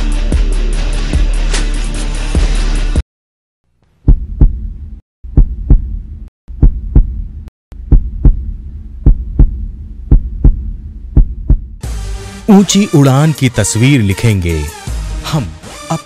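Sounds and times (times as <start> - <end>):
low steady hum: 3.8 - 11.8
deep heartbeat-like thumps: 4.0 - 11.8.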